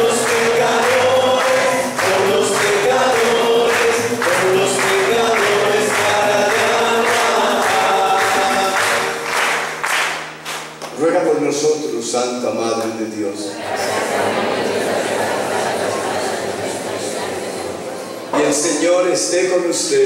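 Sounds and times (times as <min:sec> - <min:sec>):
people clapping in time: 0:00.0 - 0:11.1
congregation singing a hymn: 0:00.0 - 0:11.4, 0:12.8 - 0:20.0.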